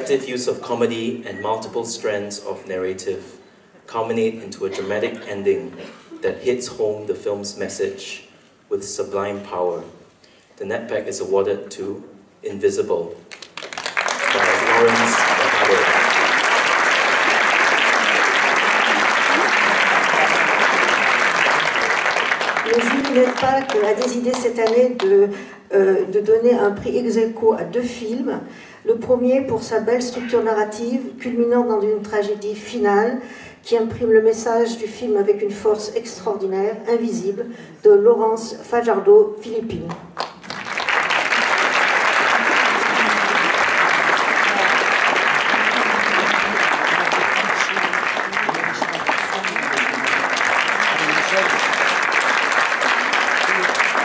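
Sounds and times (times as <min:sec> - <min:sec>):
crowd applauding: 0:13.3 - 0:24.4, 0:40.2 - 0:54.0.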